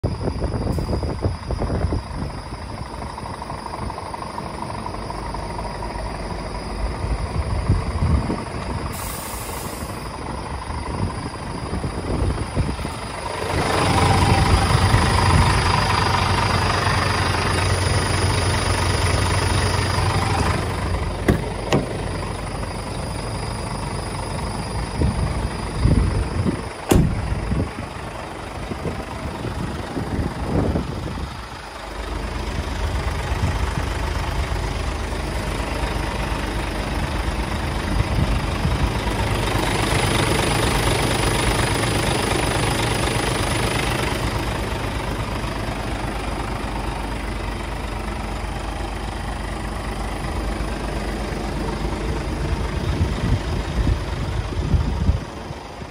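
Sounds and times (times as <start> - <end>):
diesel truck engine idling: 0.0 - 55.9
sharp knocks: 21.2 - 22.0.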